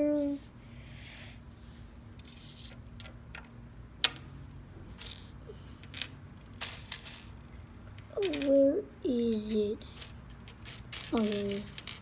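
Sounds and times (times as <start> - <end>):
faint steady hum: 0.0 - 12.0
plastic pieces clicking and clattering: 4.9 - 8.6, 9.9 - 12.0.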